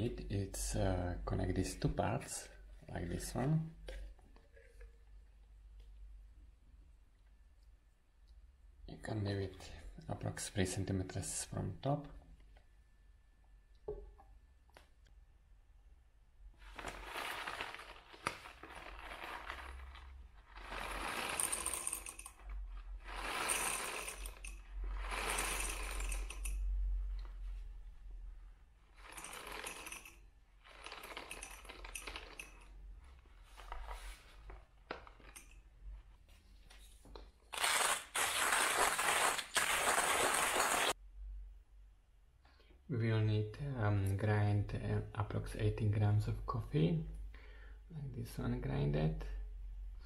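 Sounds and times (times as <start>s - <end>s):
coffee beans rattling into wooden cup: 16.6s - 26.6s, 29.0s - 32.7s.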